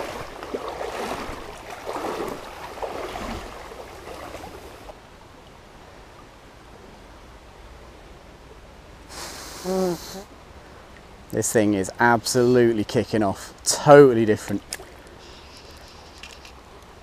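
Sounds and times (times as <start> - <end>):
river water splashing: 0.0 - 5.0, 14.3 - 16.6
faint rush of water: 0.0 - 17.0.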